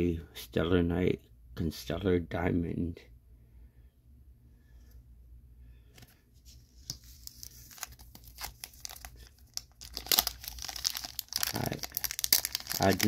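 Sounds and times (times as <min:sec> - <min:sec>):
foil wrapper crinkling: 0:06.9 - 0:13.0
foil tearing: 0:07.2 - 0:13.0.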